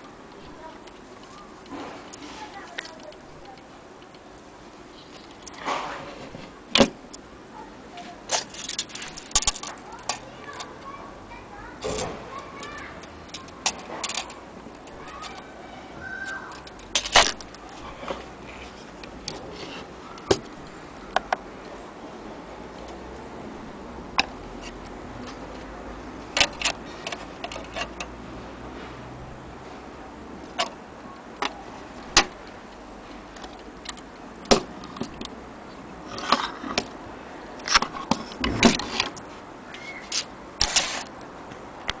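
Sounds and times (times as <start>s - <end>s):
clock mechanism clicks and knocks: 8.3s - 10.9s, 11.8s - 15.5s, 16.2s - 17.6s, 26.3s - 28.2s, 31.4s - 32.4s.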